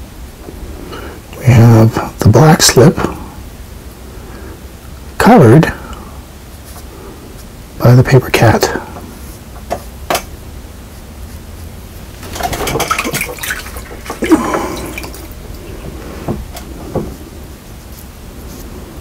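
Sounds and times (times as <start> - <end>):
water sloshing in a bucket: 12.2 - 15.8.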